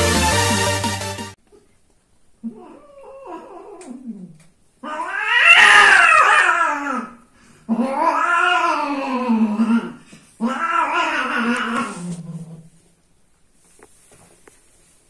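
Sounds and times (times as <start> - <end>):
cat yowling: 2.4 - 12.2.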